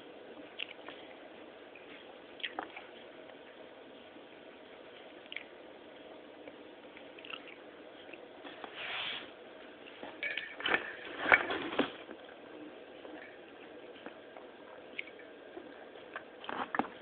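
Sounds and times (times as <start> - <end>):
pets chewing wetly: 6.4 - 8.3
short soft hiss: 8.7 - 9.4.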